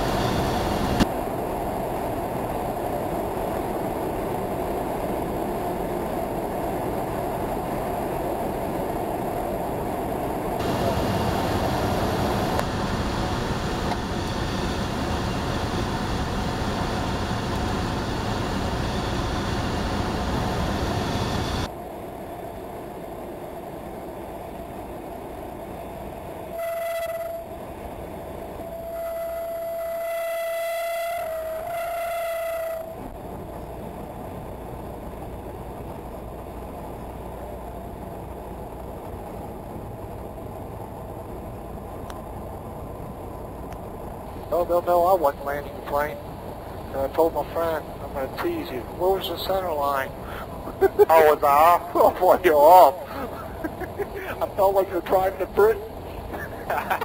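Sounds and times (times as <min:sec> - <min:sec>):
small plane engine drone: 0:00.0 - 0:57.0
stall warning horn: 0:26.4 - 0:27.6, 0:28.6 - 0:33.1.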